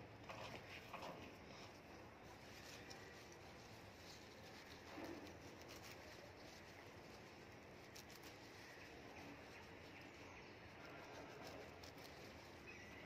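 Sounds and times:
lettuce leaves rustling: 0.1s - 13.0s
faint bird chirps: 12.4s - 13.0s.

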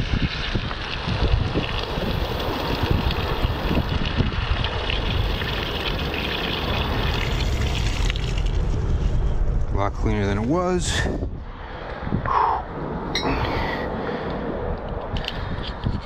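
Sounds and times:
water rushing through pipe: 0.0s - 9.8s.

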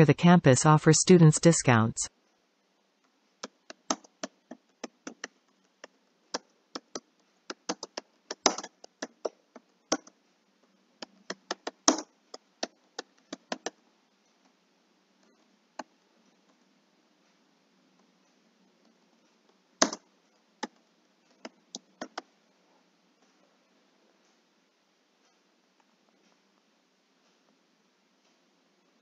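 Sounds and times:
keyboard typing: 3.4s - 10.2s, 11.0s - 13.8s, 19.8s - 20.0s, 20.6s - 22.3s.

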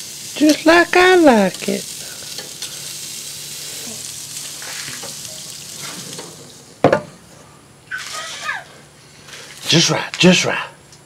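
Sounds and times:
meat sizzling on grill: 0.0s - 10.4s
grill lid clanking shut: 4.9s - 7.2s.

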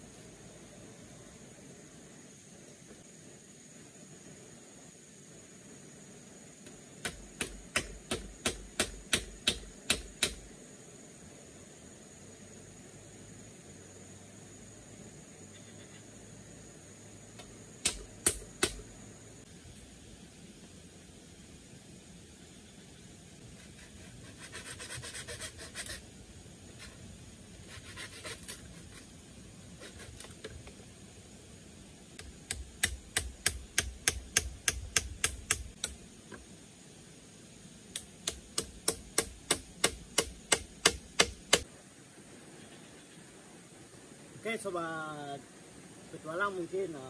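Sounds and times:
hammering on bamboo frame: 7.0s - 10.5s, 17.8s - 18.8s, 32.2s - 36.0s, 38.0s - 41.6s
scraping on bamboo pole: 23.5s - 26.0s, 27.6s - 29.2s, 29.8s - 30.5s.

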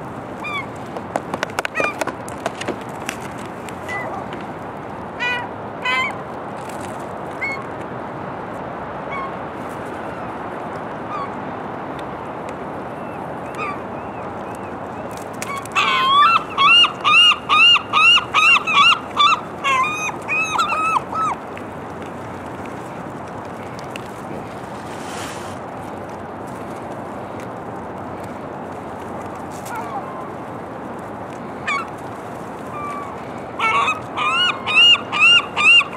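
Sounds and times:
gulls yelping: 0.4s - 0.8s, 1.6s - 2.2s, 3.8s - 4.4s, 5.2s - 6.2s, 7.3s - 7.7s, 9.0s - 9.4s, 11.0s - 11.4s, 12.9s - 21.5s, 29.6s - 30.4s, 31.4s - 32.0s, 32.6s - 35.9s.

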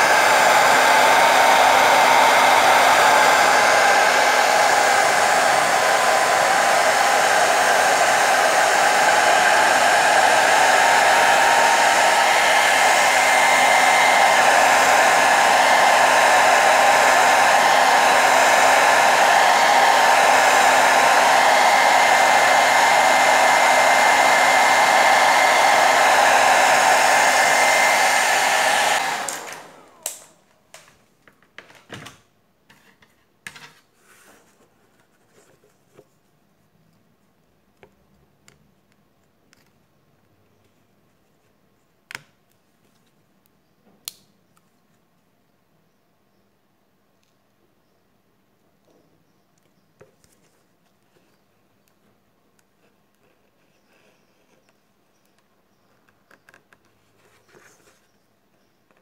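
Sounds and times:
hot-air blower running: 0.0s - 30.4s.

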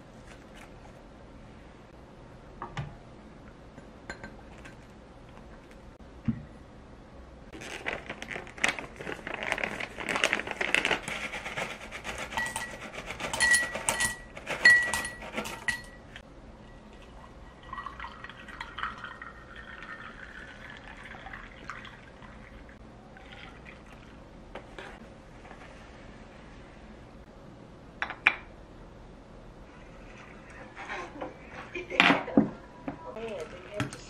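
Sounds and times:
snack pouch crinkling: 7.6s - 11.1s
milk pouring into glass: 17.5s - 24.2s.

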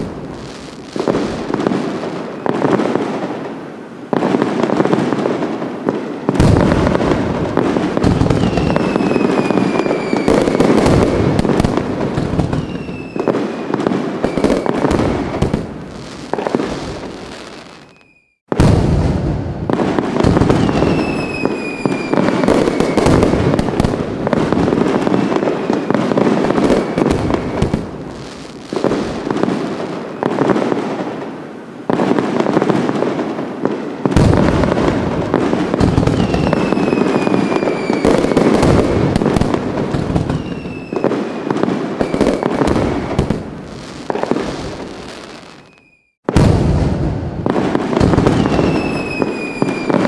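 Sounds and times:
fireworks banging and crackling: 0.0s - 50.0s
whistling firework: 0.0s - 50.0s.

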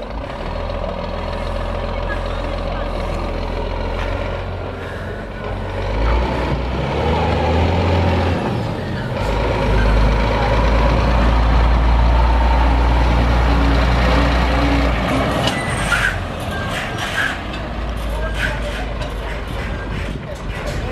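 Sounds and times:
truck diesel engine passing: 0.0s - 20.9s.

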